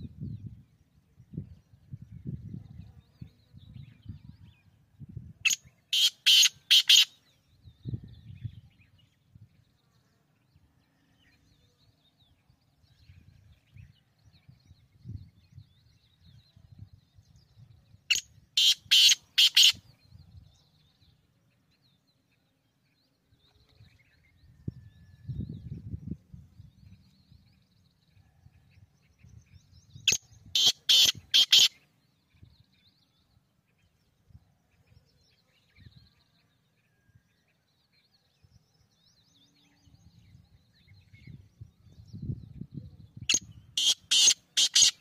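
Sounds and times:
small birds chirping: 0:00.0 - 0:45.0
harsh rasping bird call: 0:05.9 - 0:07.1, 0:18.6 - 0:19.8, 0:30.6 - 0:31.8, 0:43.8 - 0:45.0.

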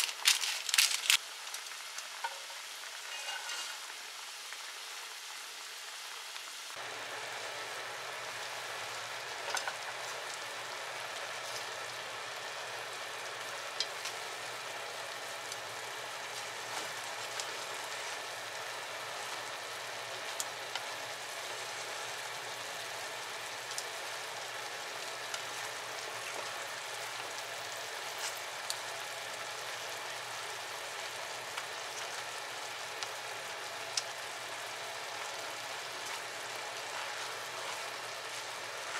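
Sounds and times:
sauce bubbling and sizzling in pan: 0:00.0 - 0:38.9.

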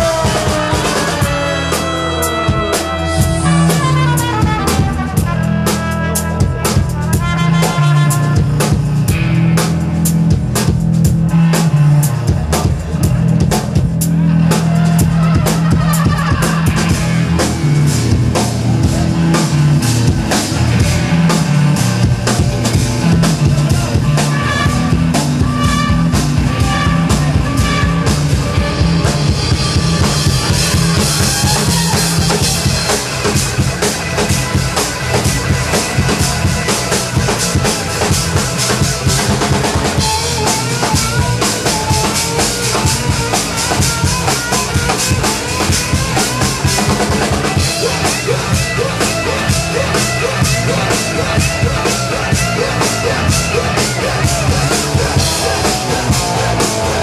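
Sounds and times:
trombone: 0:00.0 - 0:08.9, 0:23.7 - 0:51.4
drum kit beat: 0:00.0 - 0:57.0
electric guitar: 0:00.0 - 0:57.0.

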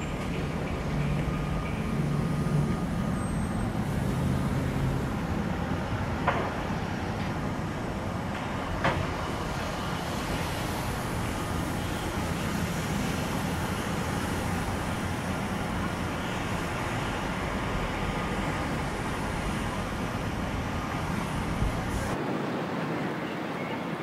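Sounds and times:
boat engine drone: 0:00.0 - 0:22.2.

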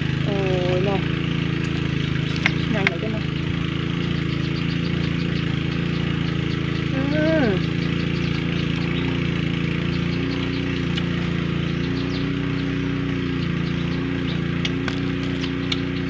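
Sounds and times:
steady mechanical drone: 0:00.0 - 0:16.0
sharp clicks: 0:10.8 - 0:11.4.

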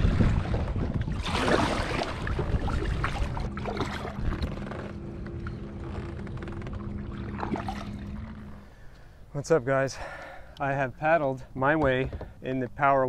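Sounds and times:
water splashing along kayak hull: 0:00.0 - 0:09.2
steady low hum: 0:00.1 - 0:13.0.

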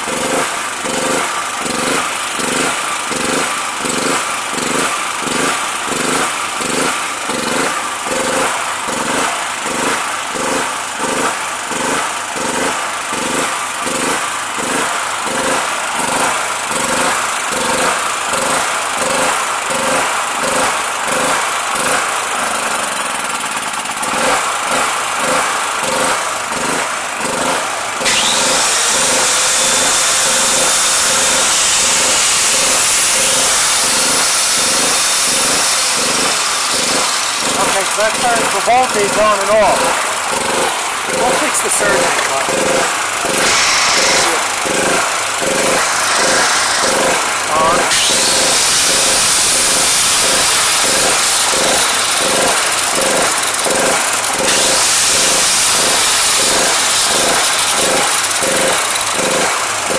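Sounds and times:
generator engine surging: 0:00.0 - 0:59.9
angle grinder whine: 0:27.3 - 0:59.9.

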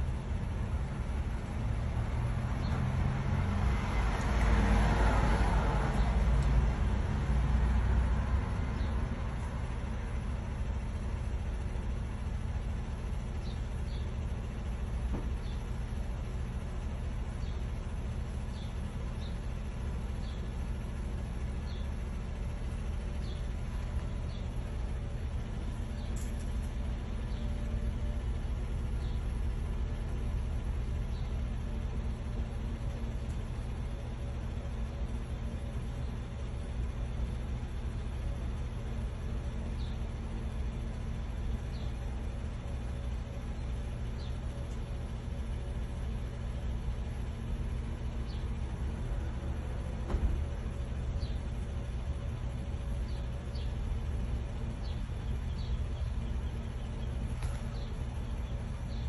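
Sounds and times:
street traffic rumble: 0:00.0 - 0:59.0
vehicle passing: 0:02.0 - 0:09.2.

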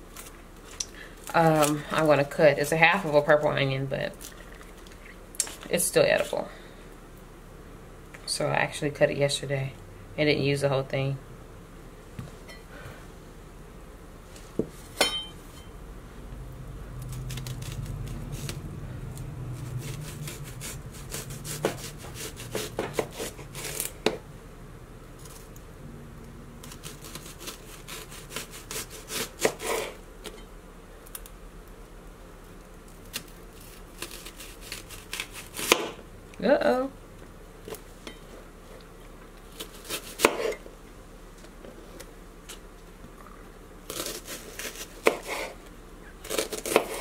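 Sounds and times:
knife slicing onion: 0:17.0 - 0:24.2, 0:26.6 - 0:30.4, 0:33.1 - 0:36.0, 0:39.5 - 0:40.6, 0:43.8 - 0:47.0.

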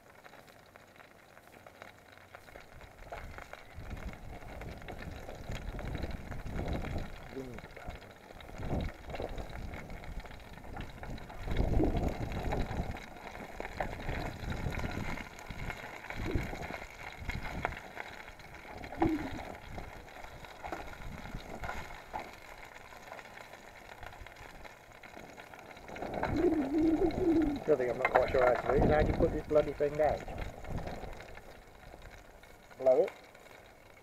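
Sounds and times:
wind rumbling on microphone: 0:02.5 - 0:22.4, 0:25.3 - 0:32.2.

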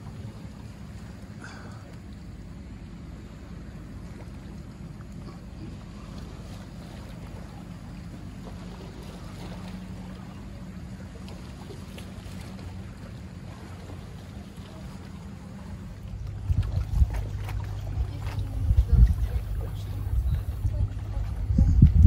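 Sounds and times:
boat engine drone: 0:00.0 - 0:22.0
water sounds: 0:00.0 - 0:22.0
wind on microphone: 0:16.0 - 0:22.0.

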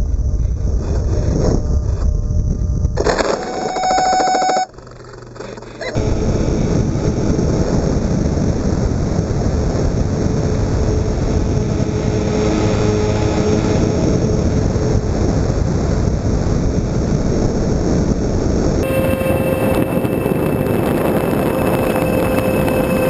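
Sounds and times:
faint steady hum: 0:00.0 - 0:23.0
wind rushing: 0:06.0 - 0:23.0
model plane motor noise: 0:09.8 - 0:16.0, 0:18.8 - 0:23.0.

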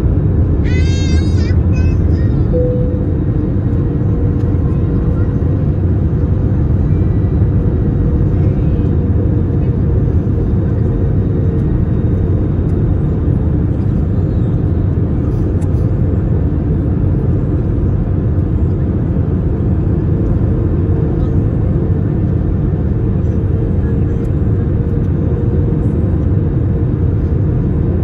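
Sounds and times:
airliner cabin rumble: 0:00.0 - 0:28.0
faint steady hum: 0:02.1 - 0:05.3.

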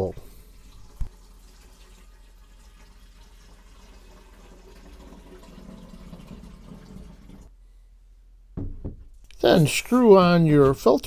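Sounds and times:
water trickling into tank: 0:00.0 - 0:07.5.

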